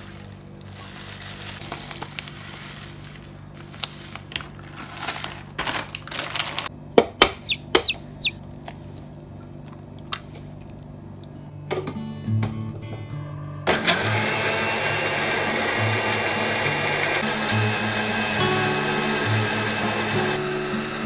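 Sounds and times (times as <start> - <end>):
oats pouring from plastic packet: 0.0 - 6.7.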